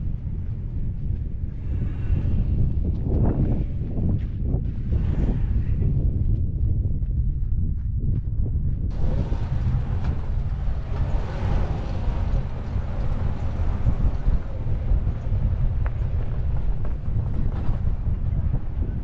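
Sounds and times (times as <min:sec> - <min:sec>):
wind buffeting microphone: 0:00.0 - 0:19.0
truck engine rumble: 0:08.9 - 0:19.0.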